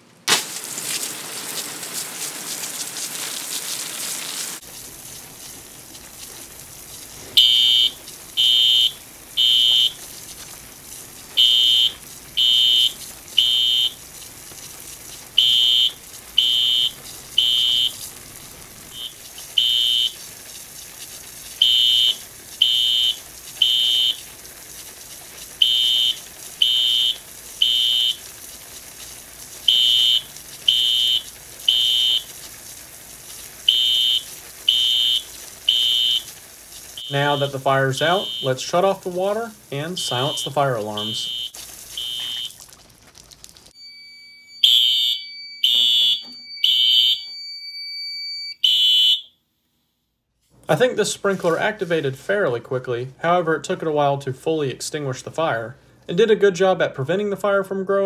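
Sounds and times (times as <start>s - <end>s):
fire alarm horn beeping: 7.4s - 10.1s, 11.4s - 14.0s, 15.4s - 18.1s, 18.9s - 20.3s, 21.6s - 24.3s, 25.6s - 28.3s, 29.7s - 32.3s, 33.7s - 36.3s, 37.0s - 38.8s, 39.8s - 42.6s, 43.8s - 49.4s.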